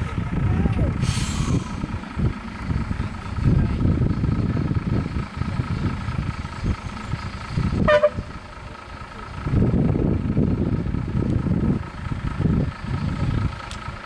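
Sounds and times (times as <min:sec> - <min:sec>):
vehicle engine rumbling: 0:00.0 - 0:14.0
short horn toot: 0:07.8 - 0:08.3.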